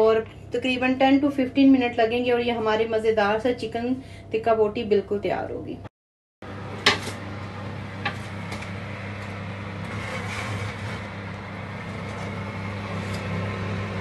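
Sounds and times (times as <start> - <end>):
electric oven humming: 6.4 - 14.0.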